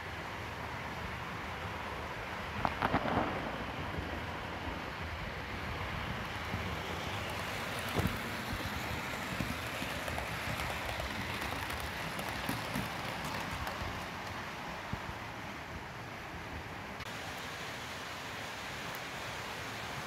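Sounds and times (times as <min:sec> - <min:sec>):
heavy rain hiss: 0:00.0 - 0:20.0
model train running: 0:05.0 - 0:14.9.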